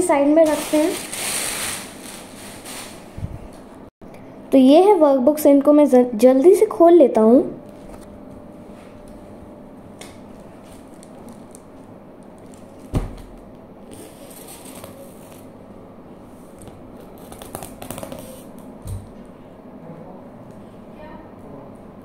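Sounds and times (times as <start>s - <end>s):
plastic crinkling and tearing: 0.0s - 3.0s, 10.5s - 13.2s, 13.9s - 15.5s
scissors cutting plastic wrap: 0.4s - 3.0s, 13.9s - 15.5s, 17.0s - 18.6s
thud: 12.9s - 13.3s.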